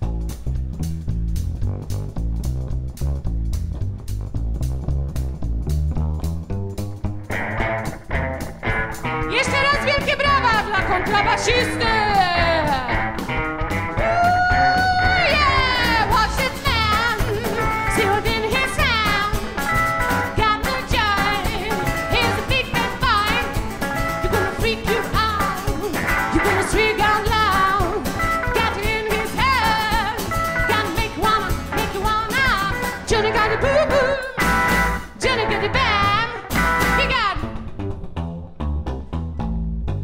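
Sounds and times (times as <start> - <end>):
steady drum beat: 0.0 - 37.6
plucked upright bass: 0.0 - 40.0
woman singing: 9.3 - 13.0, 14.0 - 34.4, 35.0 - 37.6.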